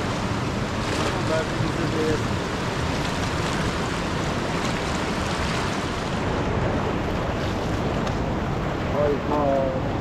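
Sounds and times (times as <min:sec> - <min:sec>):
river water rushing: 0:00.0 - 0:10.0.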